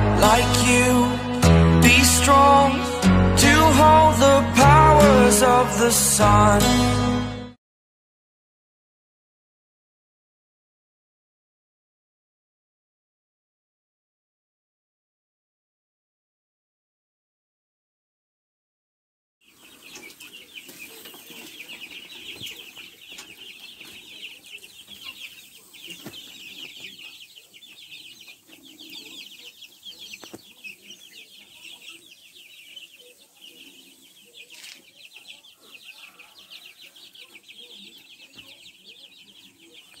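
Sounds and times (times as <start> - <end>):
chicks peeping: 0.0 - 6.8, 19.5 - 40.0.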